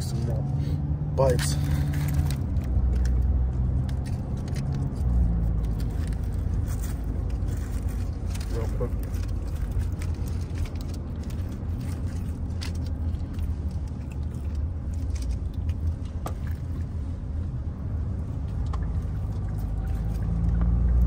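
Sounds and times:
car road rumble: 0:00.0 - 0:21.0
foil crinkling: 0:01.4 - 0:16.2.

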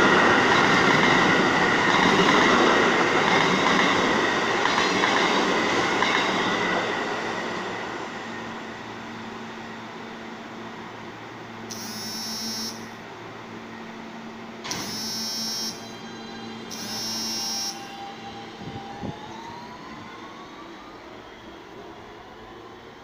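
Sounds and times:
train traction motor whine: 0:11.6 - 0:21.1
electronic door chime: 0:11.7 - 0:12.9, 0:14.7 - 0:16.0, 0:16.7 - 0:17.9.

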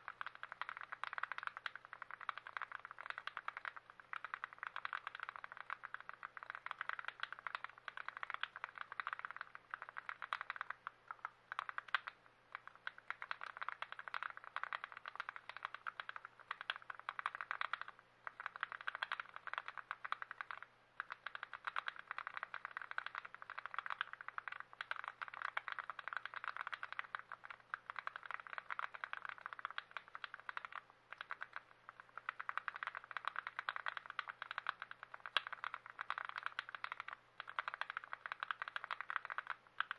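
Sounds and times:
keyboard parts clicking and rattling: 0:12.7 - 0:39.9.

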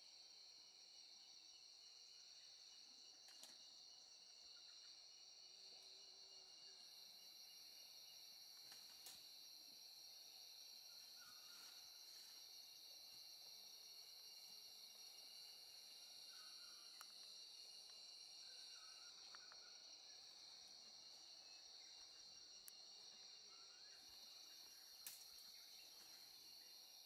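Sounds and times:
insects trilling: 0:00.0 - 0:27.0
faint clicks: 0:08.6 - 0:09.2, 0:25.0 - 0:25.5.

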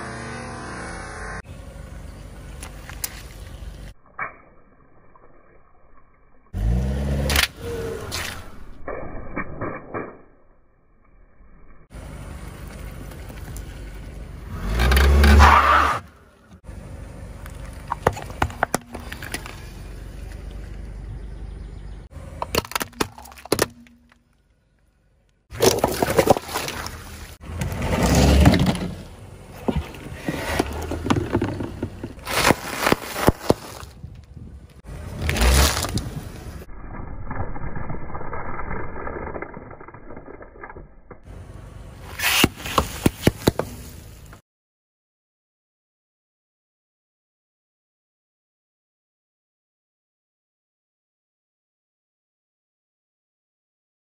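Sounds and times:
tyre crushing objects: 0:25.5 - 0:34.1, 0:35.1 - 0:36.2
crackling: 0:31.9 - 0:41.3.

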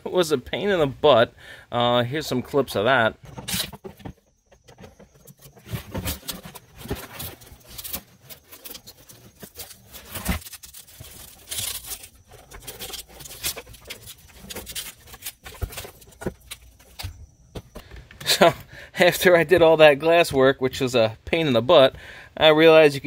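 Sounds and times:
glass crackling and scraping: 0:03.2 - 0:17.5.

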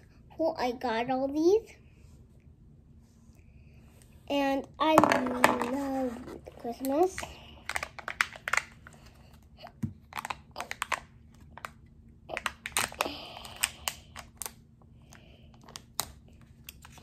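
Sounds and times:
foil wrapper crinkling and tearing: 0:10.0 - 0:14.6.

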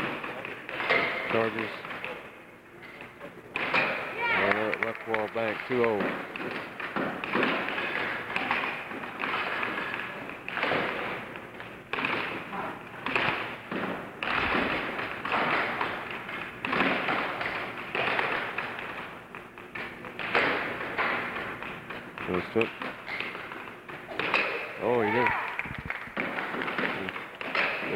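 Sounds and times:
mallets striking air hockey puck: 0:03.6 - 0:12.4, 0:13.0 - 0:23.5, 0:24.1 - 0:25.3, 0:26.2 - 0:27.9
puck knocking off table rails: 0:03.6 - 0:12.4, 0:13.0 - 0:24.7, 0:26.1 - 0:27.9.

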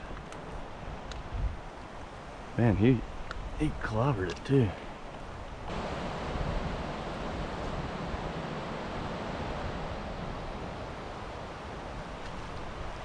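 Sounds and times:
wind noise on microphone: 0:00.0 - 0:01.8, 0:05.3 - 0:13.0.

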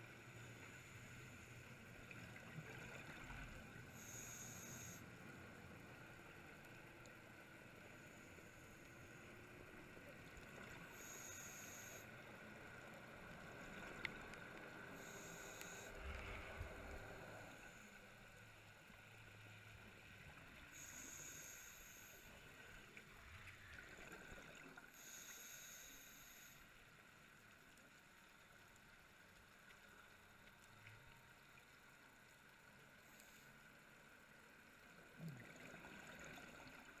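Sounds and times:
faint steady hiss: 0:00.0 - 0:37.0
short high-pitched hisses: 0:04.0 - 0:05.0, 0:11.0 - 0:12.1, 0:15.0 - 0:15.9, 0:20.8 - 0:22.4, 0:25.0 - 0:26.6.

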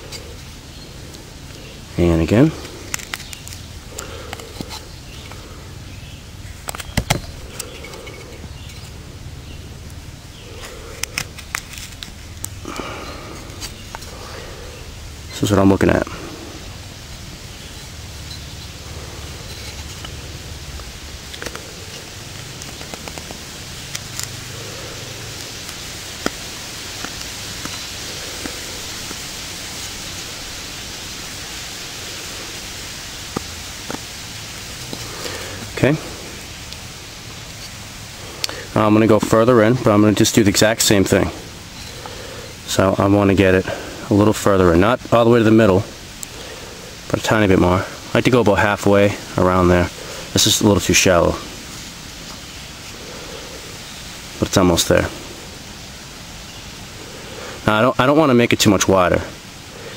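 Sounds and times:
steady hiss: 0:00.0 - 0:59.9
wood chips snapping: 0:02.6 - 0:05.6, 0:06.6 - 0:09.0, 0:09.8 - 0:14.5, 0:18.8 - 0:29.7, 0:33.2 - 0:35.8
knife carving wood: 0:02.8 - 0:05.4.

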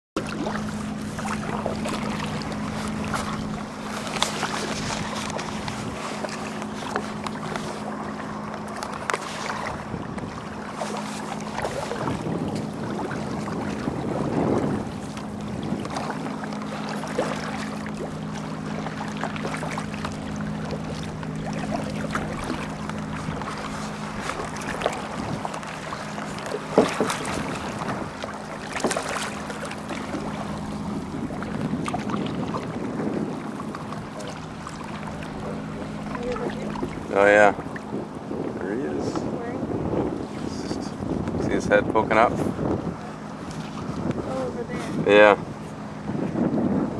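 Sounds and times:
paddle splashing in water: 0:00.2 - 0:46.9.

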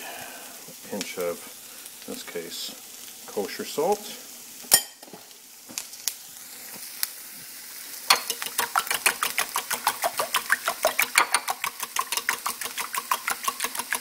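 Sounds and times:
vegetables sizzling in frying pan: 0:00.0 - 0:14.0
whisking eggs in ceramic bowl: 0:08.1 - 0:14.0.

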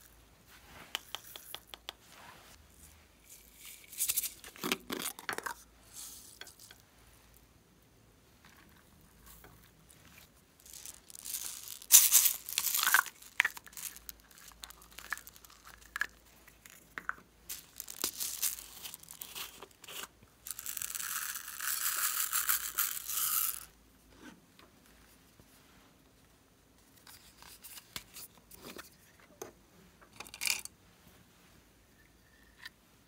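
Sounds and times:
beads pouring hiss: 0:00.8 - 0:04.5, 0:05.8 - 0:06.8, 0:10.1 - 0:23.7
plastic crinkling: 0:08.7 - 0:16.9, 0:17.5 - 0:23.5
beads ticking: 0:08.8 - 0:23.7.

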